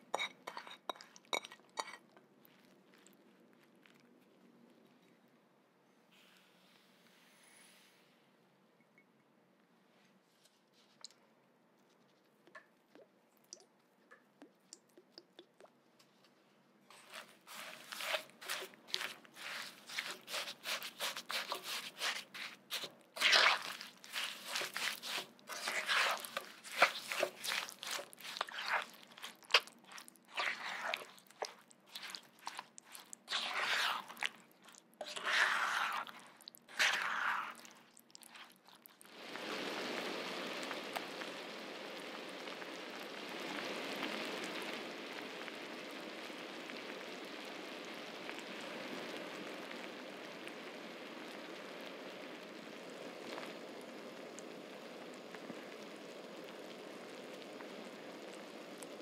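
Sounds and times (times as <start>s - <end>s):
spatula stirring fruit in a pan: 0.0s - 3.1s, 11.9s - 41.1s.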